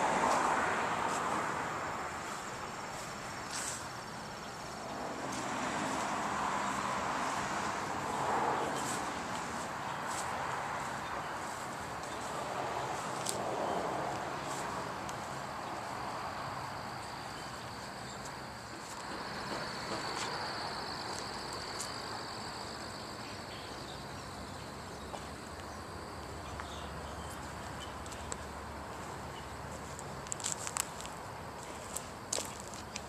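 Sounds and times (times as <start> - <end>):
high insect trill: 0.0 - 33.0.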